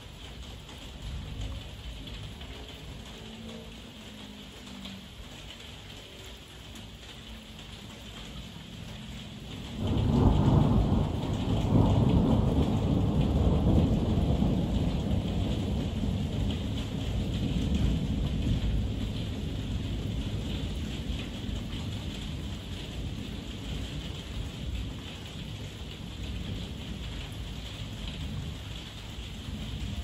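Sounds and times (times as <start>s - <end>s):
heavy rain: 0.0s - 30.0s
thunder rumbling: 9.5s - 30.0s.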